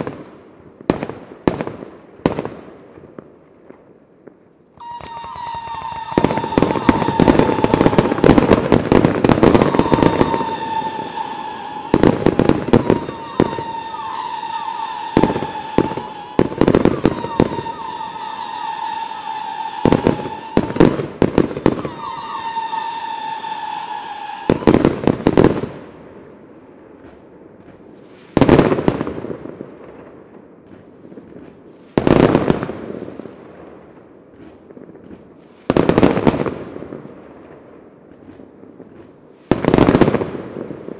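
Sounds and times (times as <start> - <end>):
firework shell bursts and bangs: 4.8 - 25.6
high firework whistle: 4.8 - 25.7.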